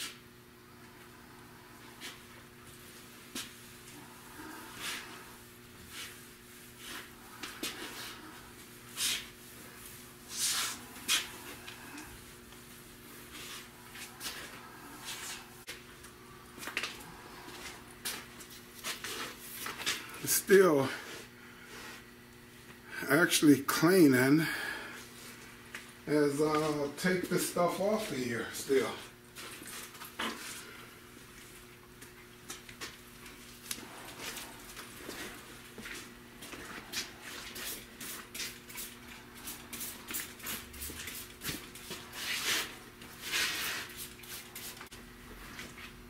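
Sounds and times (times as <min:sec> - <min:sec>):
steady low hum: 0:00.0 - 0:46.0
cleaning rag wiping swishes: 0:04.6 - 0:12.0, 0:12.7 - 0:15.7, 0:33.8 - 0:46.0.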